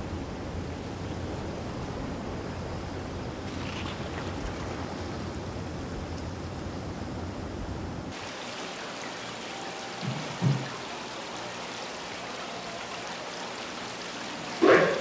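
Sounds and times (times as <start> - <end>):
low outdoor rumble: 0.0 - 8.2
water trickling into tanks: 8.1 - 15.0.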